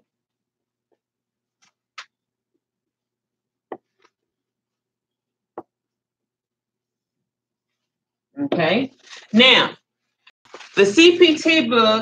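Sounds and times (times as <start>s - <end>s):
marker tapping on whiteboard: 3.7s - 4.1s, 5.5s - 5.8s.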